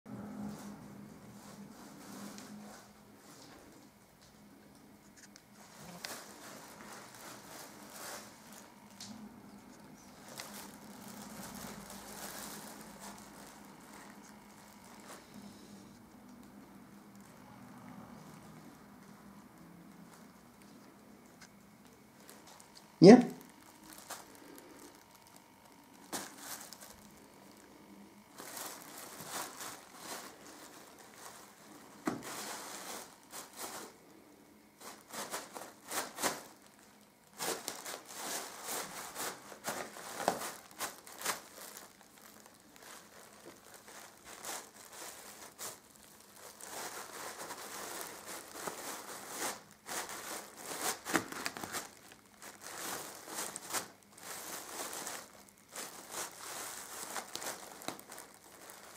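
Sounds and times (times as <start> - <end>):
plastic bags crinkling: 0.2 - 58.9.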